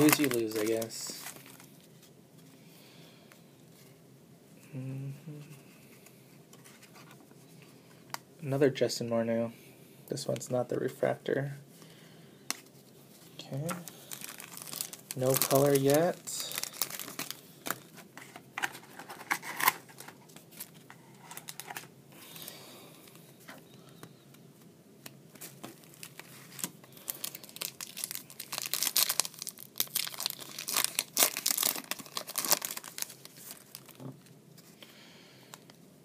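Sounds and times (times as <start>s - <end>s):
foil wrapper tearing and crinkling: 0.0s - 1.7s, 14.0s - 17.8s, 25.8s - 34.0s.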